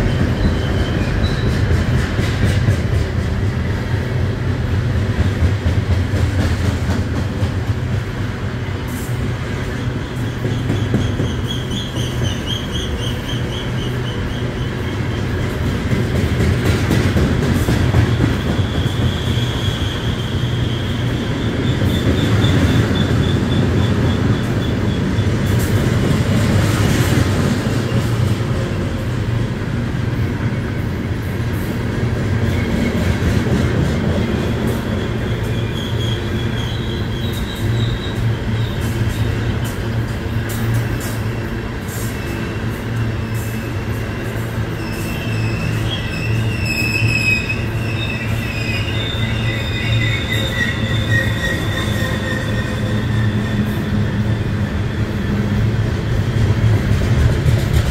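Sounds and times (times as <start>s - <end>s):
train wheels rumbling on rail: 0.0s - 57.9s
high wavering wheel squeal: 10.0s - 15.4s, 18.0s - 25.6s, 34.8s - 39.3s, 42.1s - 54.7s.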